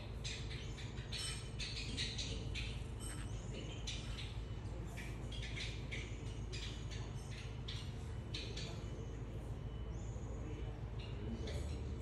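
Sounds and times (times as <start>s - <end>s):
parrotlet chirps and squawks: 0.3s - 4.4s.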